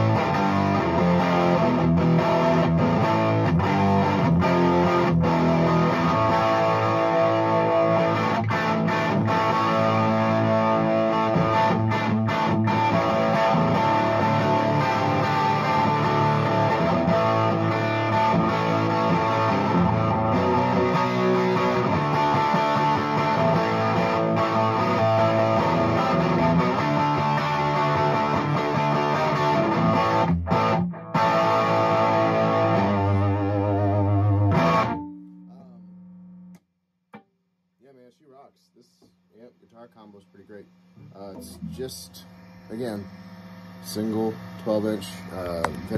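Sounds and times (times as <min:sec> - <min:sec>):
electric guitar playing: 0:00.0 - 0:36.6, 0:41.0 - 0:45.9.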